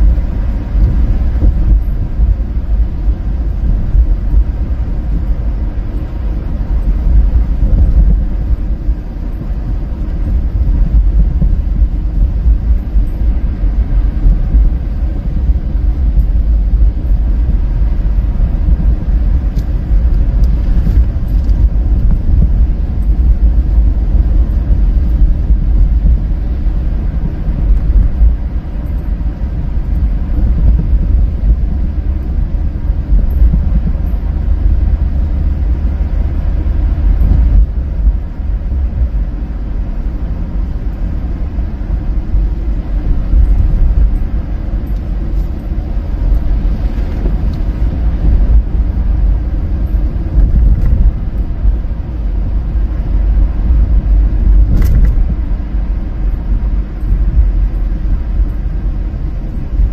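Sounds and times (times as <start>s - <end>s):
car driving on snow: 0.0s - 59.9s.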